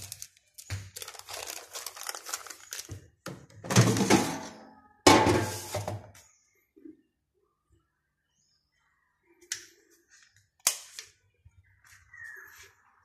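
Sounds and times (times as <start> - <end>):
kitchen items clattering: 0.0 - 6.2
kitchen items clicking and rustling: 0.0 - 6.2.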